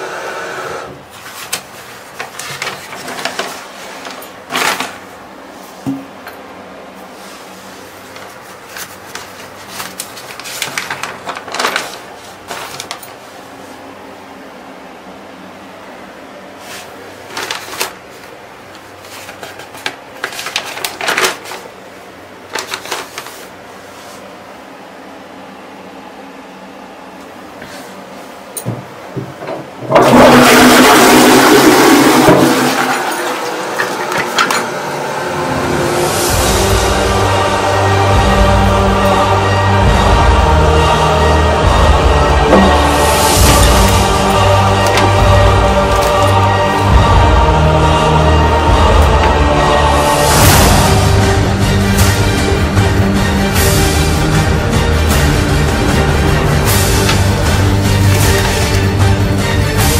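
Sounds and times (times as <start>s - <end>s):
faint steady hum: 0.0s - 30.0s
newspaper pages rustling: 1.2s - 5.1s, 8.0s - 13.4s, 16.6s - 21.7s, 22.5s - 24.2s
toilet flushing: 29.4s - 38.1s, 41.2s - 47.2s.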